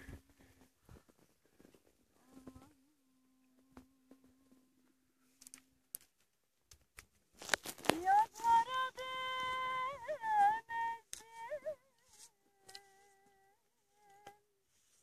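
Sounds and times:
light clicks and rustles: 0:05.4 - 0:08.6
person singing long high note: 0:07.9 - 0:14.5.

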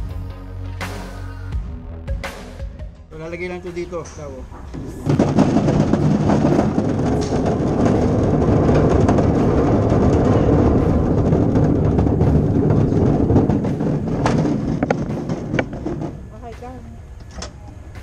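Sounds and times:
golf balls rattling into hopper: 0:04.5 - 0:16.6.

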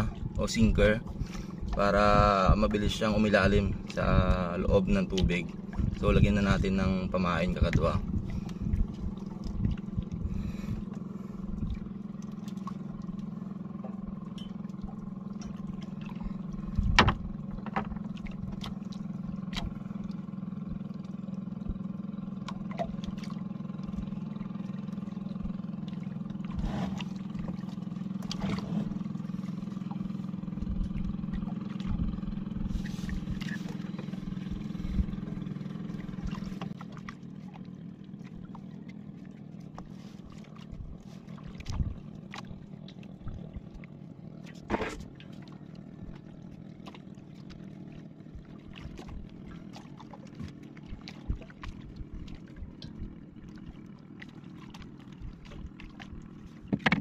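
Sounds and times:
boat engine droning: 0:00.0 - 0:57.0
knocks against wooden boat: 0:16.7 - 0:18.7, 0:56.6 - 0:57.0.

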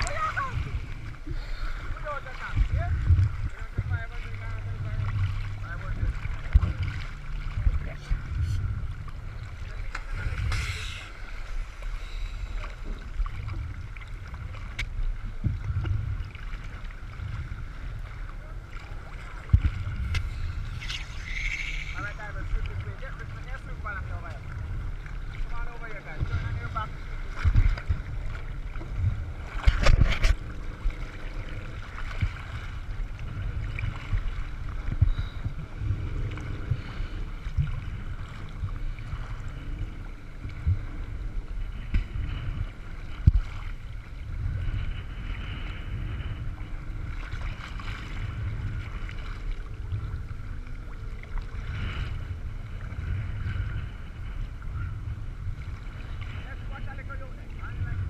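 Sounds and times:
sea water sloshing and splashing: 0:00.0 - 0:58.0
wind on microphone: 0:00.0 - 0:58.0.

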